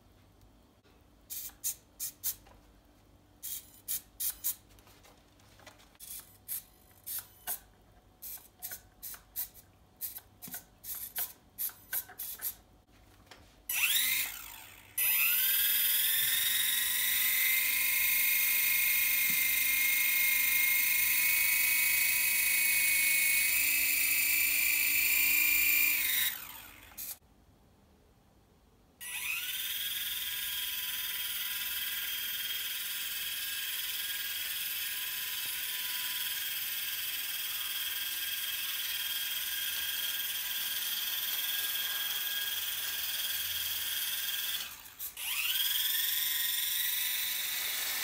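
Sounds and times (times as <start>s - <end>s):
electric motor high-pitched whine: 13.7s - 27.2s, 29.0s - 48.0s
servos whirring buzzes: 13.7s - 27.2s, 29.0s - 32.4s, 33.5s - 48.0s.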